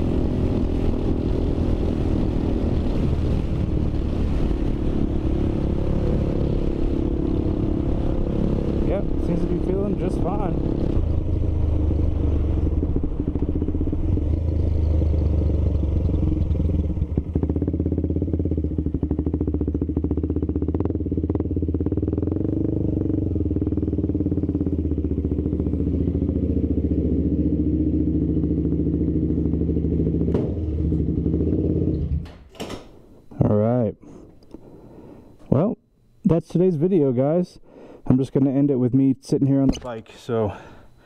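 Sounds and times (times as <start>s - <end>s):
motorcycle engine running: 0.0s - 32.3s
deep rumble: 0.0s - 32.4s.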